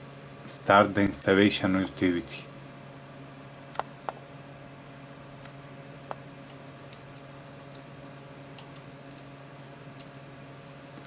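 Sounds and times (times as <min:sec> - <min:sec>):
computer humming: 0:00.0 - 0:11.0
faint clicks and ticks: 0:08.6 - 0:09.3.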